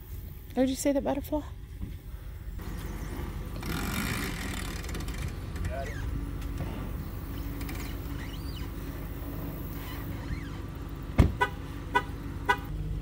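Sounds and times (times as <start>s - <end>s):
engine idling: 1.6s - 13.0s
short high squeaks: 7.3s - 8.8s, 9.7s - 10.7s
loud thump: 11.1s - 11.4s.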